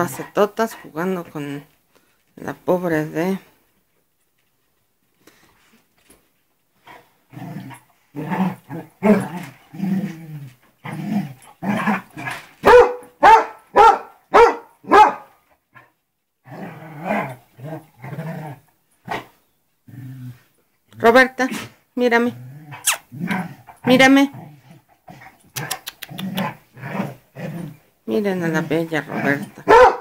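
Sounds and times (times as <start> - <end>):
dogs growling: 6.8 - 12.5, 15.8 - 20.6, 22.2 - 29.8
dog barking loudly: 12.6 - 15.4, 29.6 - 30.0.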